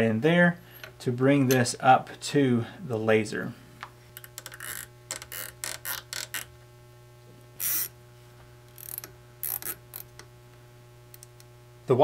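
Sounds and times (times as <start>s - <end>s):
cable tie ratcheting zips: 4.2s - 6.5s, 7.6s - 8.0s, 8.8s - 10.2s.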